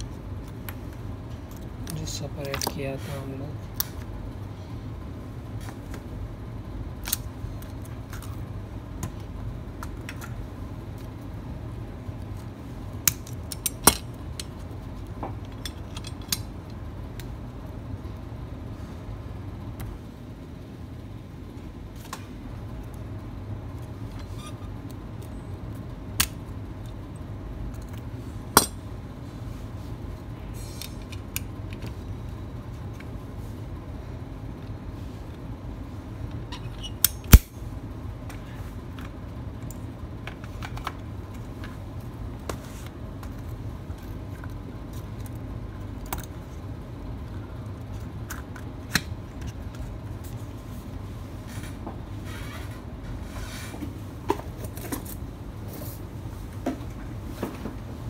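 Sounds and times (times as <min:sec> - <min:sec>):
steady low hum: 0:00.0 - 0:58.0
small parts and tools clicking: 0:13.0 - 0:14.7, 0:15.3 - 0:17.3.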